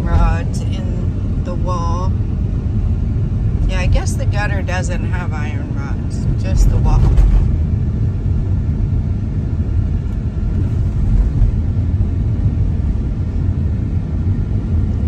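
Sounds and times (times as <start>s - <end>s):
car engine rumble: 0.0s - 15.0s
tyre noise on rough road: 10.3s - 13.2s.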